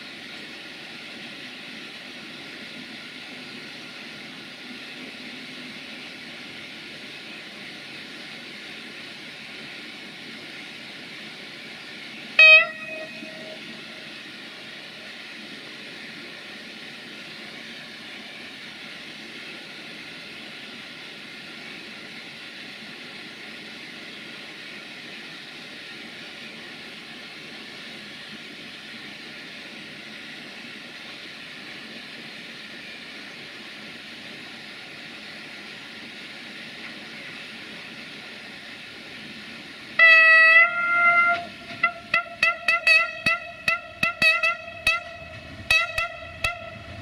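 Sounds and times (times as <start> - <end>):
steady rushing noise: 0.0 - 40.0, 40.7 - 47.0
train horn toot: 12.4 - 14.0, 40.0 - 47.0.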